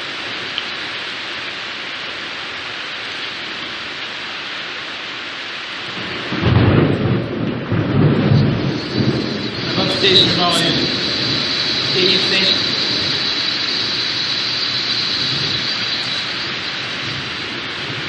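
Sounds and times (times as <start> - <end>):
heavy rain hiss: 0.0 - 18.0
low thunder rumble: 5.9 - 18.0.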